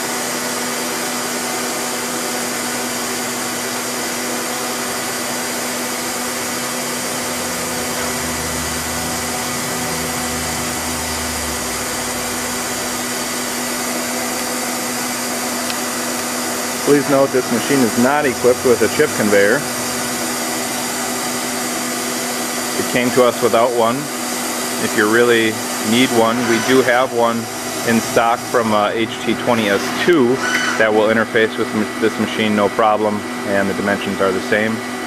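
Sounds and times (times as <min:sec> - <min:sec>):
lathe machine whir: 0:00.0 - 0:35.0.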